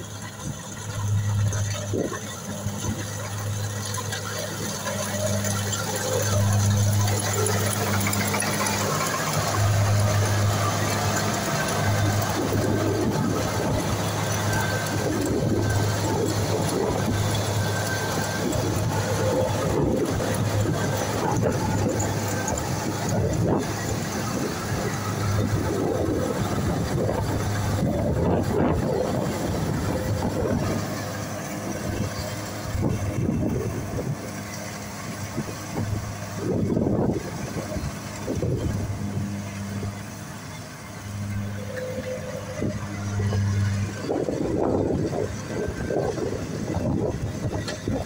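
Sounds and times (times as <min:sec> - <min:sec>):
diesel engine low hum: 0:00.0 - 0:48.0
machinery clatter: 0:00.0 - 0:48.0.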